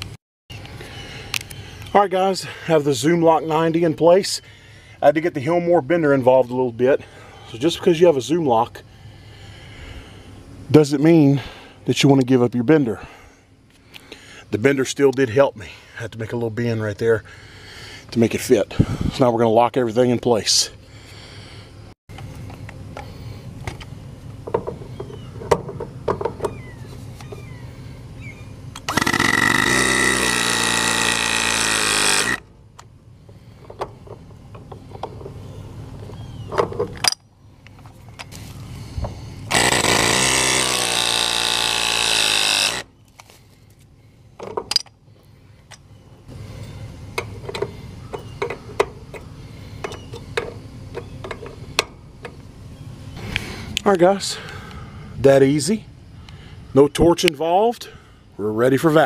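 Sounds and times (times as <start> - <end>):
hydraulic press tool motor: 28.8 - 32.5, 39.5 - 42.9.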